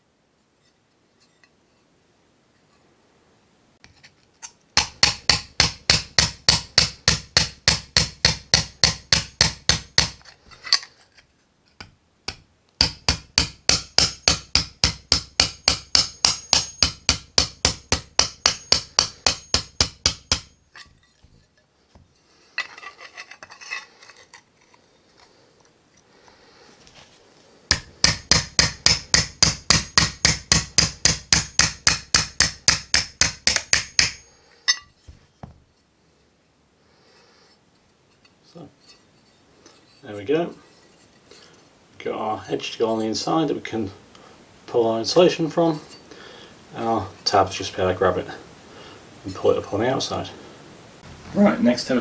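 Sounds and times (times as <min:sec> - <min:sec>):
metal scraping and handling: 0:00.6 - 0:01.9, 0:03.8 - 0:04.7, 0:10.2 - 0:11.8, 0:18.4 - 0:27.9, 0:34.5 - 0:35.9, 0:37.1 - 0:41.8
hammer tapping sheet metal: 0:04.8 - 0:10.2, 0:11.8 - 0:21.4, 0:27.7 - 0:34.8.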